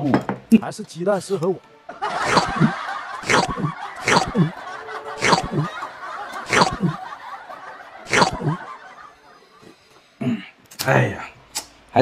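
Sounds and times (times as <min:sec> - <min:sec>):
comic snickering laugh: 0:02.0 - 0:09.4.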